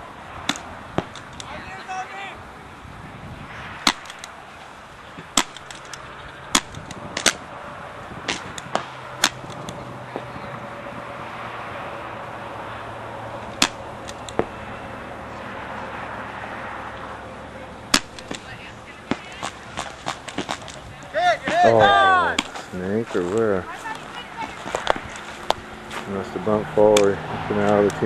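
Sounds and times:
paintball marker pops: 0:06.6 - 0:07.4.

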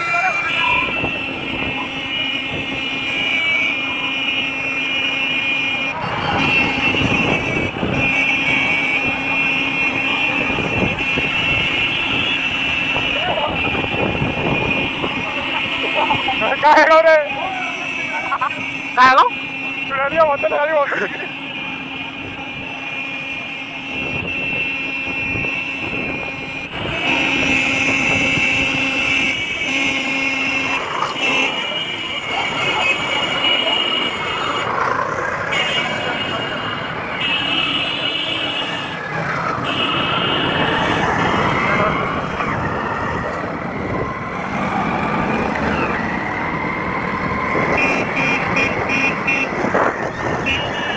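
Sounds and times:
motorcycle engines running: 0:00.0 - 0:50.9
street traffic: 0:00.0 - 0:50.9
wind rushing over microphone: 0:00.7 - 0:02.8, 0:06.0 - 0:08.2, 0:10.3 - 0:15.5, 0:39.0 - 0:50.9.

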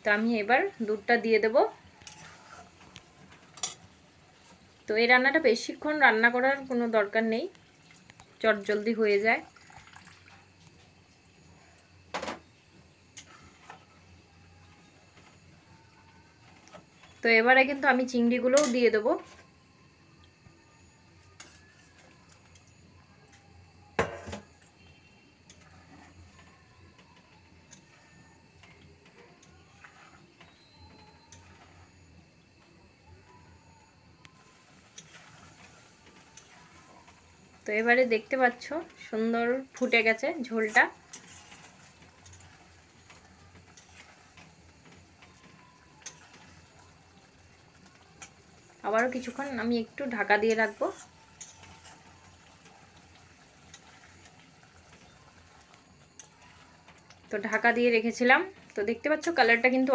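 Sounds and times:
faint scrapes and clinks of stirring: 0:00.6 - 0:04.8, 0:13.1 - 0:17.2, 0:20.4 - 0:33.5, 0:34.2 - 0:57.7
metal spatula clanking on pan: 0:03.5 - 0:03.9.

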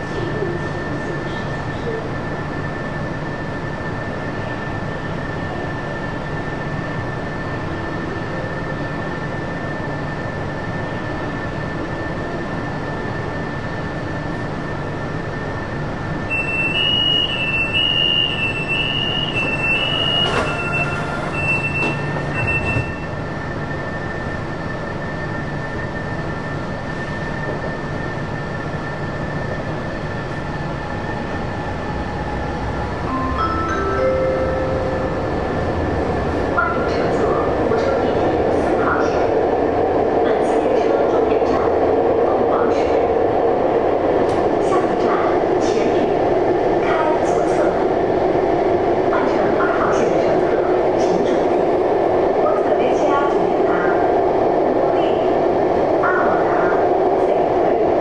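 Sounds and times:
train wheels rumbling on rail: 0:00.0 - 0:34.0, 0:34.7 - 0:58.0
wheel squeal: 0:16.3 - 0:23.1.

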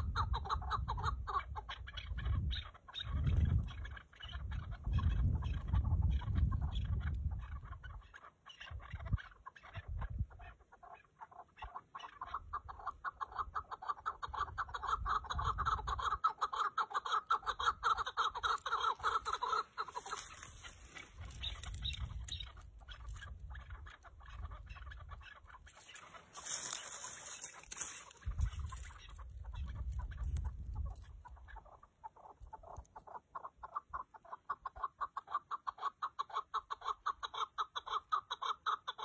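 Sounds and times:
partridges calling: 0:00.0 - 0:39.0.

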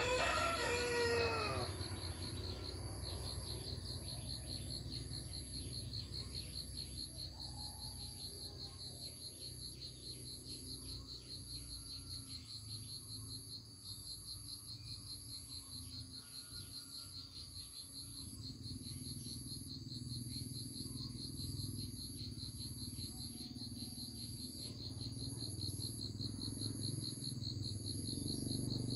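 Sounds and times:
high insect buzz: 0:00.0 - 0:06.0
crickets chirping: 0:00.0 - 0:28.9.

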